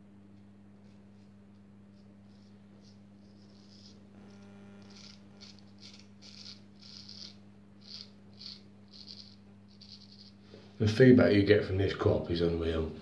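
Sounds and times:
razor scraping stubble: 0.8s - 10.6s.

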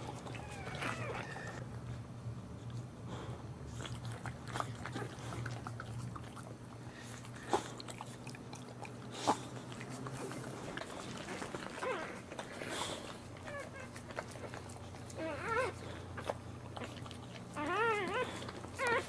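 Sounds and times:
dog licking puppies: 0.0s - 1.8s, 3.7s - 19.0s
steady low hum: 0.0s - 19.0s
puppy squeaks: 0.3s - 1.6s, 15.2s - 15.8s, 17.6s - 19.0s.

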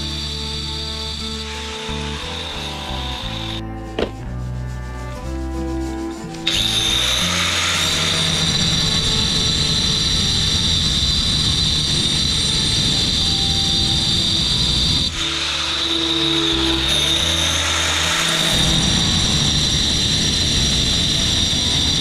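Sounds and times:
angle grinder whine: 0.0s - 22.0s
background music: 0.0s - 22.0s.

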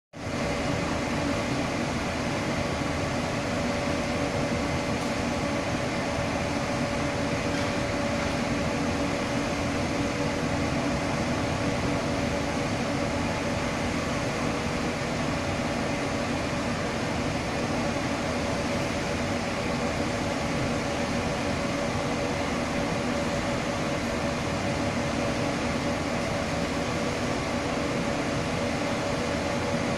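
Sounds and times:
building machinery drone: 0.2s - 29.9s.

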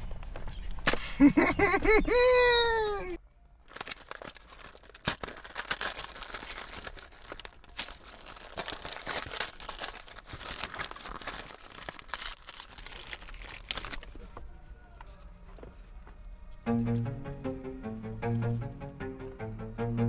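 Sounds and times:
wrapper crinkling and tearing: 3.5s - 14.3s.

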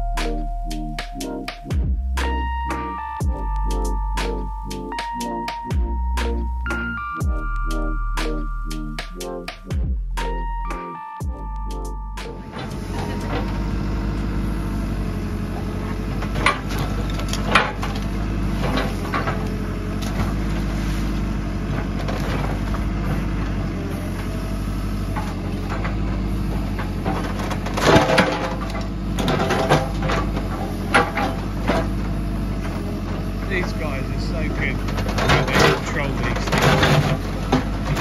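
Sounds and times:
diesel engine running: 0.0s - 38.0s
masonry cracking and crunching: 13.2s - 24.3s, 25.0s - 38.0s
bucket knocking and scraping concrete: 34.6s - 38.0s.

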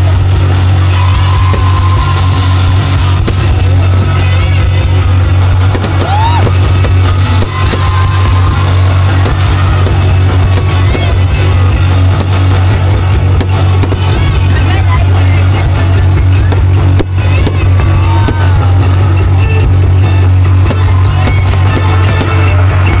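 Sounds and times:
fireworks bursting and crackling: 0.0s - 23.0s
loud music with heavy bass: 0.0s - 23.0s
firework whistle: 0.6s - 3.4s, 5.5s - 12.8s.

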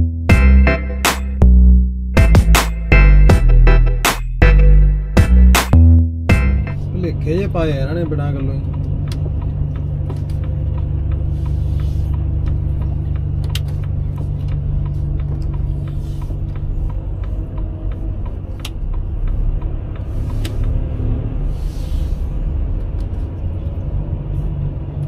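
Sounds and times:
truck diesel engine rumbling: 0.0s - 25.0s
light regular ticking: 7.5s - 20.8s.

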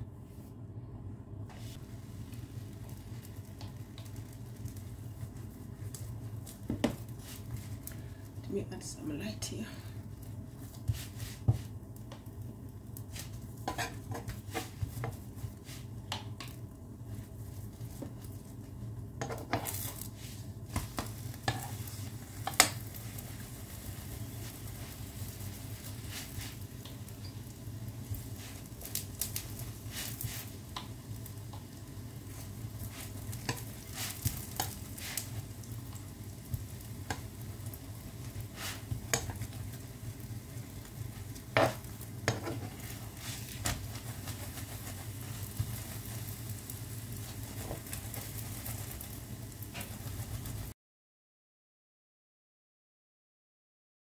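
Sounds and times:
steady low hum: 0.0s - 50.7s
flatbread sizzling in a pan: 1.5s - 8.5s, 9.9s - 50.8s
utensil scraping and tapping pan: 13.2s - 15.2s, 19.2s - 19.9s, 20.7s - 21.8s, 41.5s - 45.9s.

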